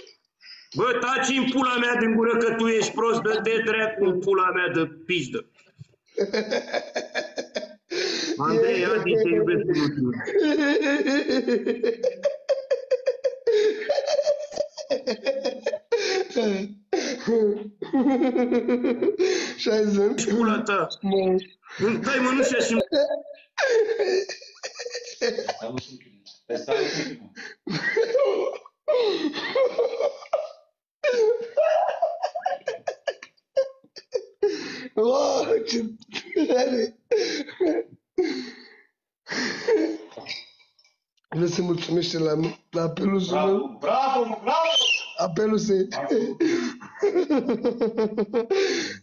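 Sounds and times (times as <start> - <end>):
man laughing: 2.4 - 4.1, 6.2 - 19.3, 21.8 - 37.9, 45.9 - 48.6.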